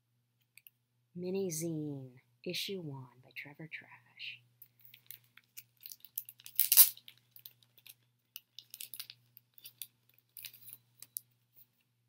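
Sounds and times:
plastic sleeve crinkling: 4.9s - 11.2s.

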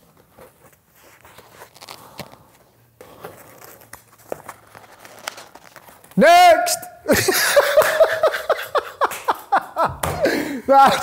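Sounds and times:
soft rustling: 0.0s - 6.2s.

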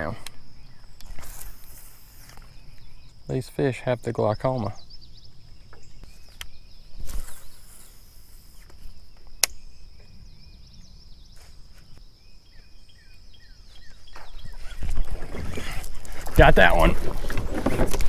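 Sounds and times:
bird chirps: 0.0s - 17.0s
high insect drone: 0.0s - 17.8s
sharp click: 9.4s - 9.6s.

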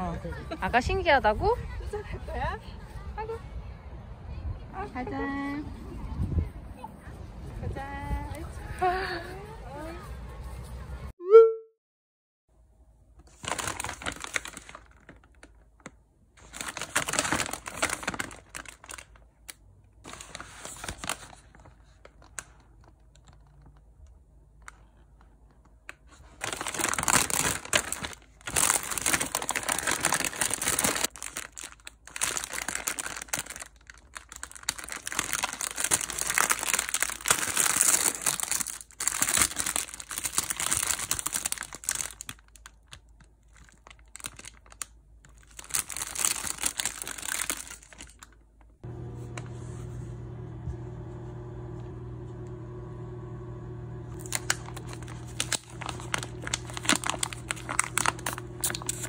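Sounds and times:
paper and plastic wrap crinkling: 13.2s - 24.0s, 25.9s - 50.0s, 54.1s - 59.0s.

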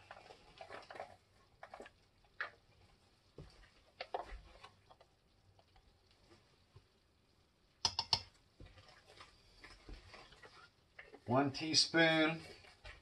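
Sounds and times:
handling spice containers: 0.0s - 2.7s
sharp clicks: 7.8s - 8.3s.

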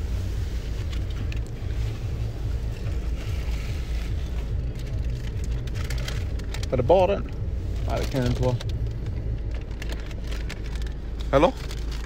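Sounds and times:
car engine rumble in cabin: 0.0s - 12.0s
road noise: 0.0s - 12.0s.

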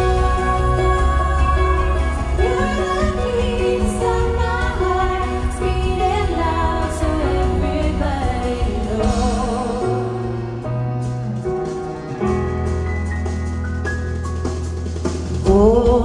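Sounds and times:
woman singing with vibrato: 0.0s - 10.6s, 15.4s - 16.0s
keyboard and bass accompaniment: 0.0s - 16.0s.

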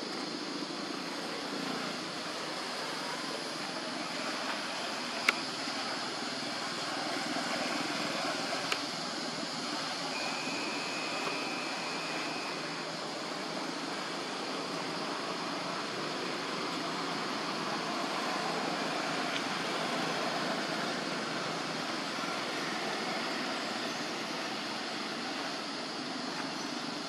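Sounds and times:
outdoor hiss with low rumble: 0.0s - 27.0s
thin steady high tone: 0.0s - 27.0s.

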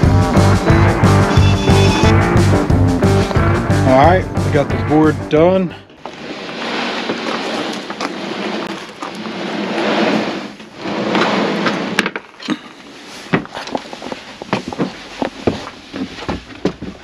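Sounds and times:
plywood board scraping and rubbing: 5.9s - 17.0s.

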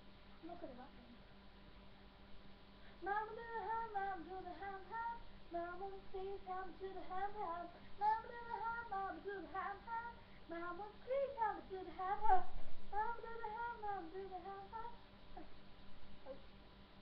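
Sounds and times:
girl singing a pop song: 3.0s - 15.5s.

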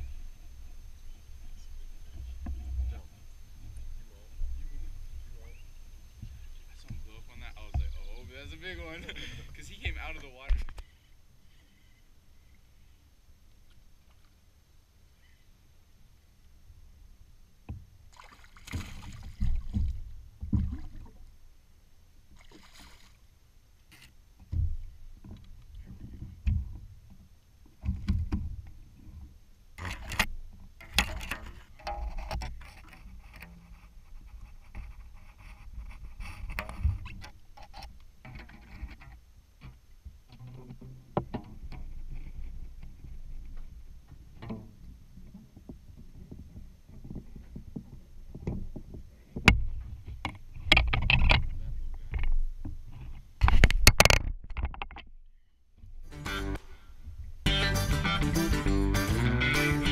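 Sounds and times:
knocks and bumps in kayak: 18.7s - 21.2s, 24.4s - 27.1s, 27.7s - 28.8s, 38.2s - 55.1s.

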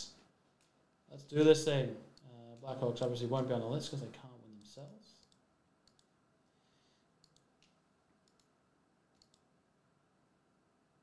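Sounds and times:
computer keys clicking: 5.2s - 6.1s, 7.2s - 8.6s, 9.2s - 9.5s.

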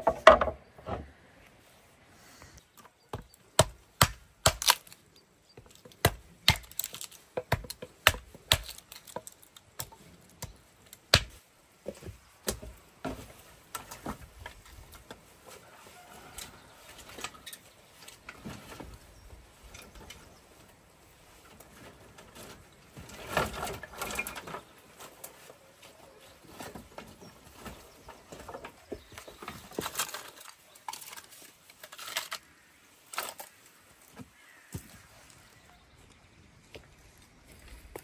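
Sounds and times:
split wood knocking and clattering: 0.0s - 1.0s, 5.6s - 14.6s
hatchet chopping kindling: 3.1s - 5.0s, 5.6s - 11.4s.

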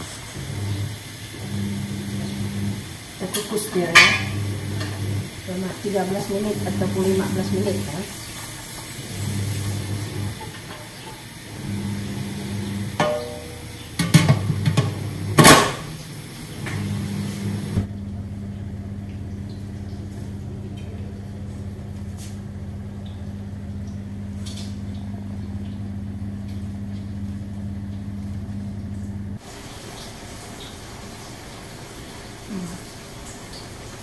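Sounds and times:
metal lid clanking onto pot: 3.4s - 5.0s, 13.0s - 15.8s.

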